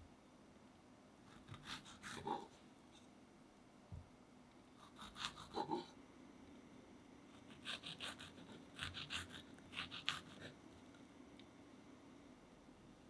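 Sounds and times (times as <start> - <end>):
faint room hum: 0.0 - 13.0
knife cutting on wooden board: 7.5 - 10.5.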